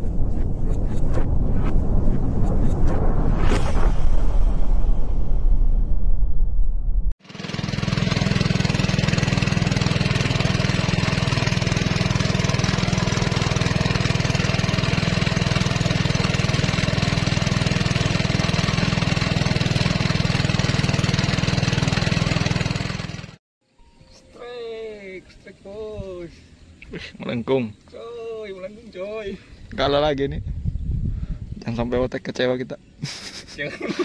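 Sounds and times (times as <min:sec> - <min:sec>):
small boat engine running: 0:07.2 - 0:23.4.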